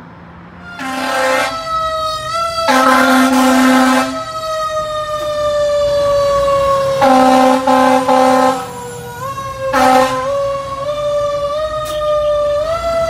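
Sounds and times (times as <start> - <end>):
air horn blasts: 0.6 - 1.8, 2.6 - 4.3, 7.0 - 8.8, 9.7 - 10.4
fire engine siren wailing: 0.6 - 13.0.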